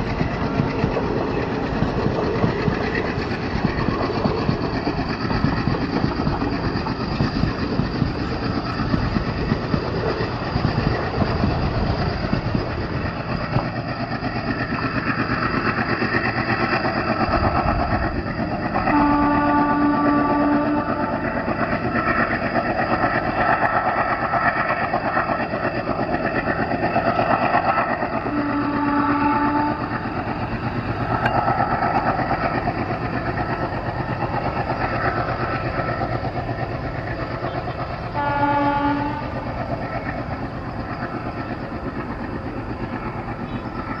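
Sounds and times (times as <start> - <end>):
diesel locomotive engine chugging: 0.0 - 44.0
locomotive horn blasts: 18.9 - 21.1, 28.3 - 29.9, 38.2 - 39.4.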